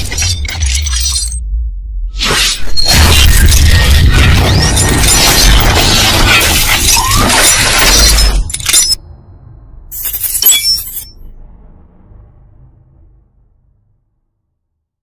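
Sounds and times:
glassy shattering effect: 0.0 - 1.4, 2.2 - 9.0, 9.9 - 11.3
deep rumble: 0.0 - 6.2, 11.0 - 14.8.

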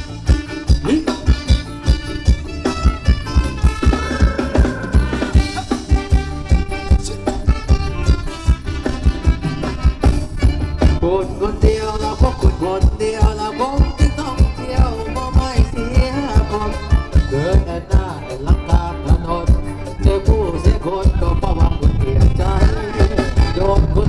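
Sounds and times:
quick drum beat: 0.0 - 11.0
folk dance music through speakers: 0.0 - 24.0.

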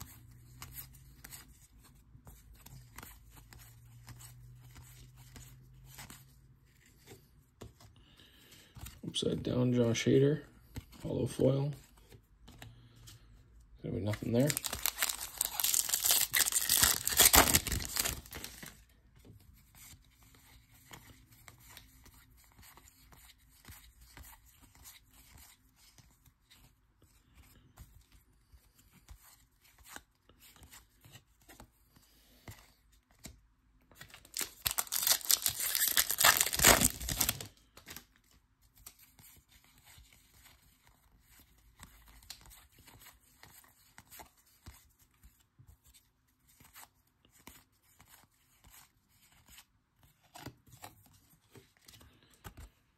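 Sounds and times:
cards ticking when handled: 14.0 - 18.8, 34.0 - 39.2
foil wrapper ripping open: 14.4 - 18.6, 34.3 - 37.5.

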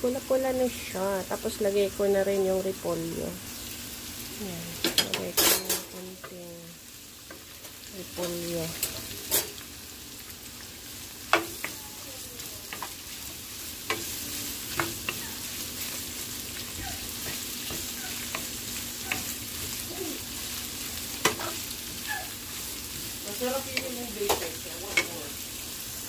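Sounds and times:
vegetables sizzling in hot oil: 0.0 - 26.0
spatula clacking against pan: 14.7 - 15.3.

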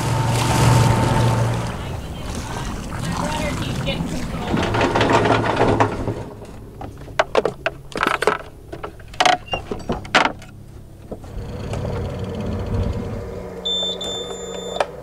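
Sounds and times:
wind and water rushing: 0.0 - 8.7
low steady hum: 0.0 - 15.0.

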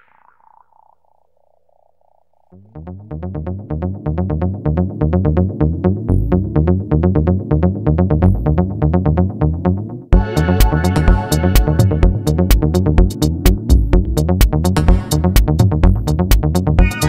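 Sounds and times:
electronic dance music: 10.1 - 17.0.

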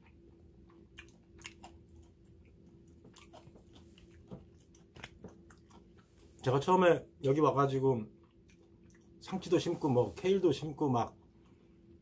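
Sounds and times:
person chewing food: 0.0 - 6.6, 8.1 - 9.2
low steady hum: 0.0 - 12.0.

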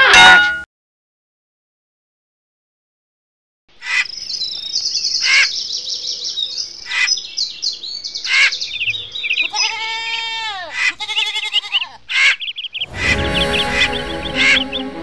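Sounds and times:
small birds chirping: 3.7 - 10.0, 10.7 - 15.0
goat bleating: 9.4 - 12.0.

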